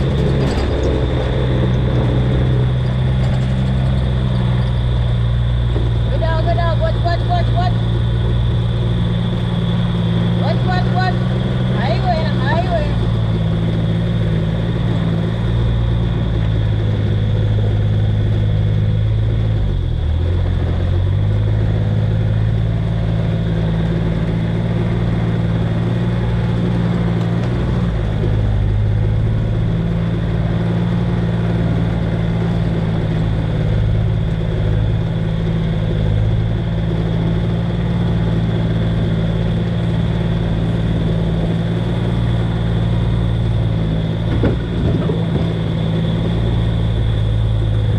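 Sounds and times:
farm vehicle engine running: 0.0s - 47.9s.

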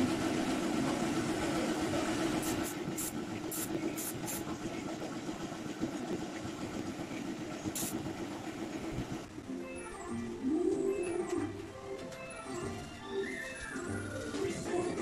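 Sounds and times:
spray gun air hisses: 2.4s - 4.4s, 7.7s - 8.0s.

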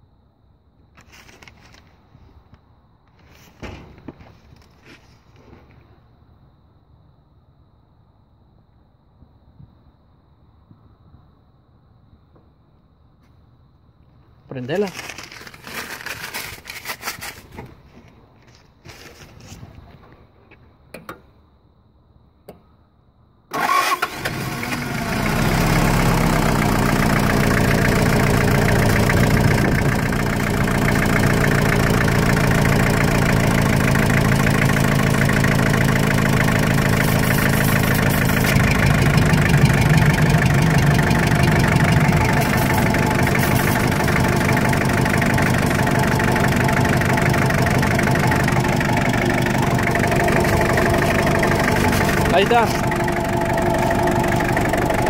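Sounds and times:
diesel engine starting and idling: 23.5s - 55.0s.

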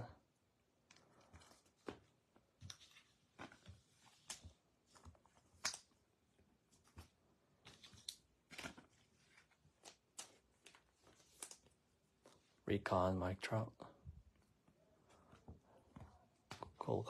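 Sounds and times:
trading cards flicking and rustling: 0.8s - 6.0s, 6.6s - 12.5s.

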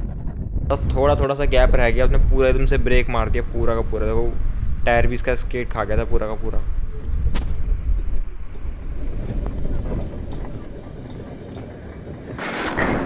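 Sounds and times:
wind on microphone: 0.0s - 13.0s
scooter road noise: 6.7s - 13.0s.

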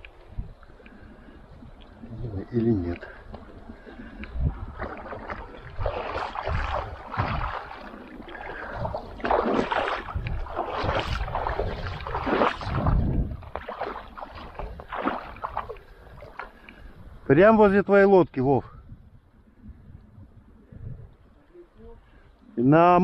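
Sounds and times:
river water splashing: 0.0s - 17.0s
wind rumbling on microphone: 0.0s - 23.0s.

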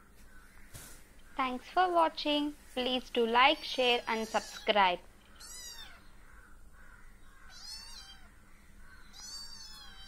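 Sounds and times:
kittens mewing: 4.0s - 6.1s, 7.4s - 8.4s, 9.0s - 10.0s.

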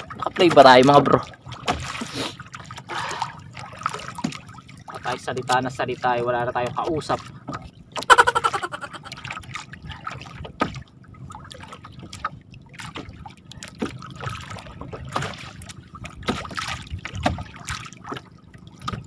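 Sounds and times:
lake water lapping against boat: 0.0s - 19.0s
short knocks on boat: 10.4s - 10.9s, 12.1s - 19.0s.

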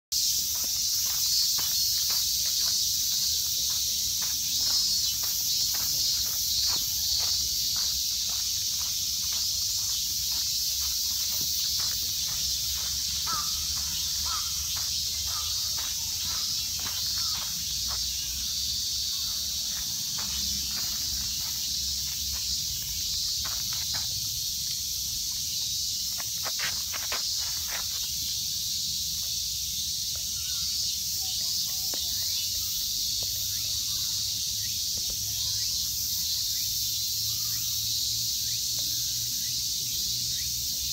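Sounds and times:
insects chorus: 0.1s - 40.9s
dog footsteps on dirt: 0.6s - 18.3s, 19.6s - 24.2s.

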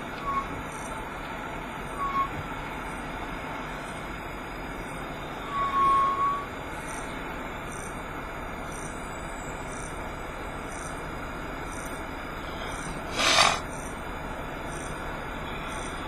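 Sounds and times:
high-pitched brake squeal: 0.0s - 0.9s, 1.8s - 2.4s, 5.3s - 6.6s, 12.5s - 13.7s
vehicle running noise from cab: 0.0s - 16.0s.

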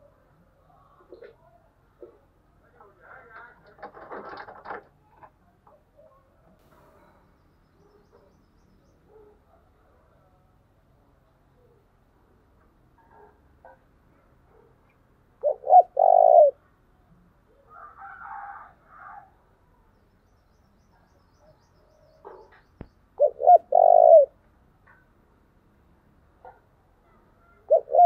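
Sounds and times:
dove cooing: 15.4s - 16.7s, 23.2s - 25.0s, 27.4s - 28.0s.

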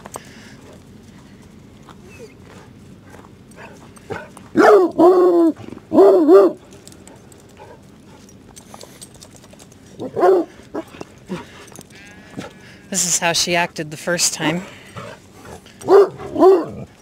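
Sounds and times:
dog barking: 4.1s - 6.6s, 10.0s - 10.9s, 15.8s - 16.9s.

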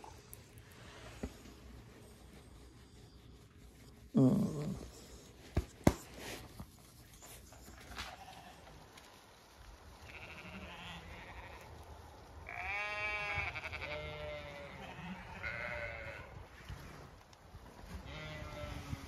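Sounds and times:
sheep bleating: 10.0s - 11.7s, 12.4s - 16.3s, 18.0s - 19.0s.

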